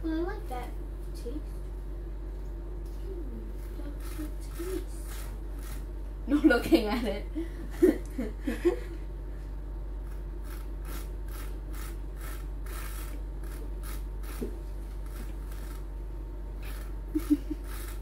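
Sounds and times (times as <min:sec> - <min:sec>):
sucking on a drinking straw: 0:16.6 - 0:18.0.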